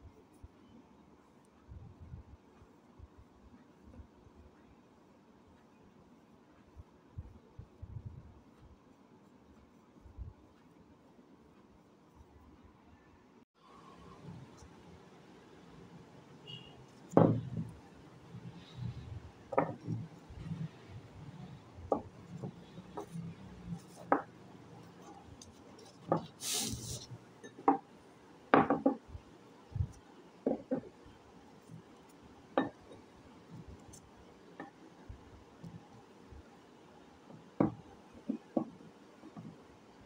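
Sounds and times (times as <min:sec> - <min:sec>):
clay discs clicking and knocking: 0:19.4 - 0:20.5, 0:28.5 - 0:31.1.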